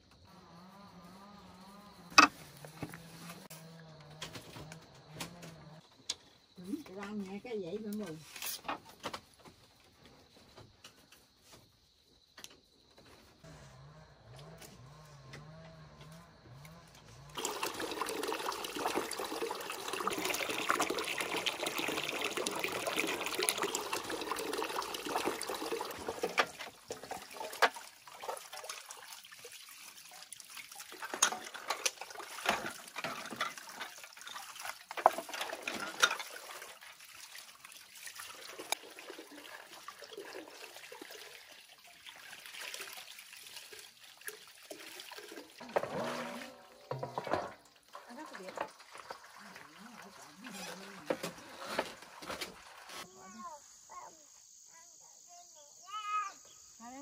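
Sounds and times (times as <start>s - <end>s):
water rushing: 17.3s - 51.8s
water splashing: 17.3s - 53.3s.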